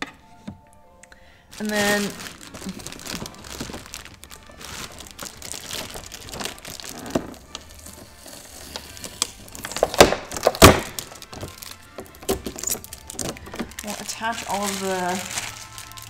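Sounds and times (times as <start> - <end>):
packaging rustling: 1.5 - 16.0
plastic parts clicking: 9.1 - 13.9.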